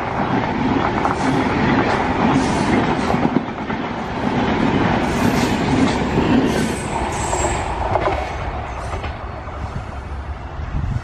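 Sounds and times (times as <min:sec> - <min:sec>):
train wheels rumbling on rails: 0:00.0 - 0:11.0
high wheel squeal: 0:06.4 - 0:07.7.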